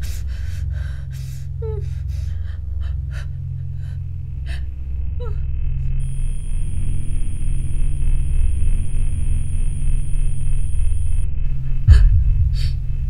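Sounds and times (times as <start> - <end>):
woman whimpering: 0.0 - 3.4
low steady hum: 0.0 - 13.0.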